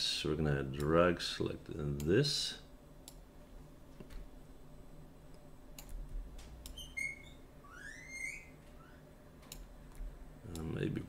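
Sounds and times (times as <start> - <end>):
low steady hum: 0.0 - 11.0
computer mouse clicks: 3.0 - 3.2, 5.3 - 6.8, 9.4 - 10.7
high chirps: 6.7 - 9.0.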